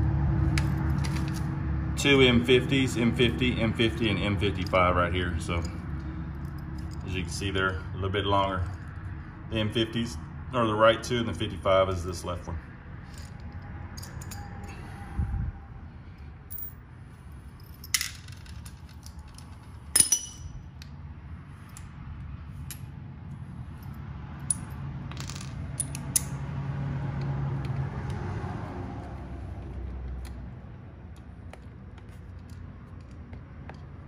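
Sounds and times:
metal tools and bolts clinking: 0:03.8 - 0:07.8, 0:13.0 - 0:14.9, 0:16.4 - 0:20.9, 0:23.6 - 0:26.5
sharp metallic clinks: 0:13.0 - 0:14.9, 0:17.5 - 0:20.7.

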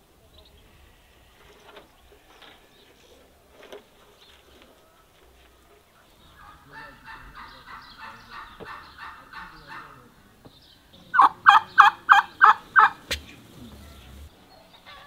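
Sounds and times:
turkey calling: 0:04.6 - 0:10.4, 0:11.0 - 0:15.0.

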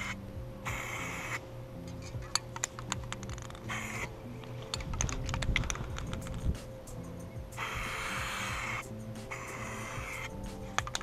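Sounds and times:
spray paint hiss: 0:00.0 - 0:01.4, 0:03.6 - 0:04.2, 0:05.8 - 0:11.0.

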